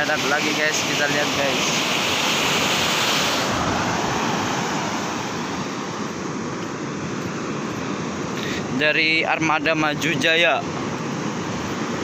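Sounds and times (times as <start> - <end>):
wind: 0.0 - 12.0
surf breaking on beach: 0.1 - 6.0.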